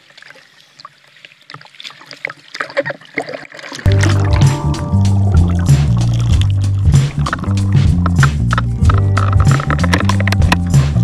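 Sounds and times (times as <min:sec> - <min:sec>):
bass line: 0:03.9 - 0:11.0
drum hits: 0:03.9 - 0:11.0.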